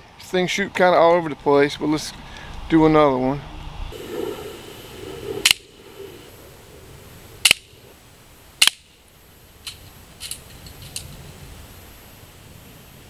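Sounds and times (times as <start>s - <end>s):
air pistol shots snapping: 5.4s - 5.7s, 7.4s - 7.7s, 8.6s - 9.0s.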